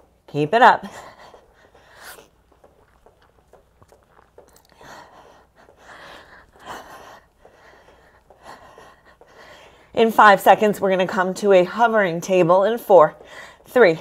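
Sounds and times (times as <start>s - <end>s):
woman breathing hard: 0.8s - 2.6s, 4.4s - 10.0s, 13.2s - 13.7s.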